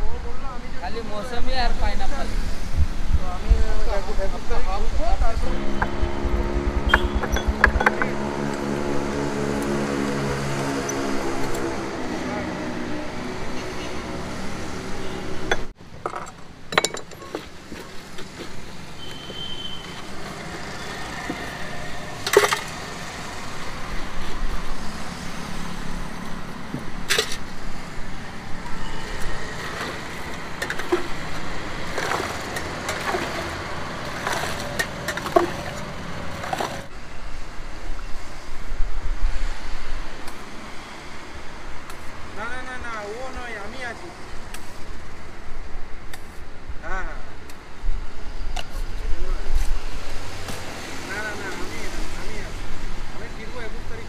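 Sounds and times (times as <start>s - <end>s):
road traffic: 0.0s - 54.0s
steel utensils clinking: 29.5s - 36.8s.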